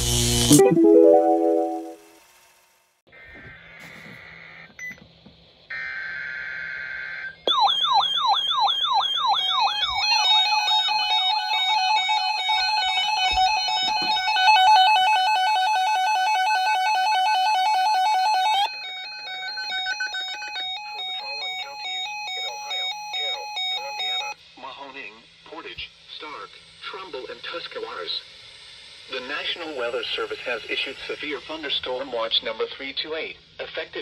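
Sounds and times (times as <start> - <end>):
warbling siren alarm: 5.7 - 24.4.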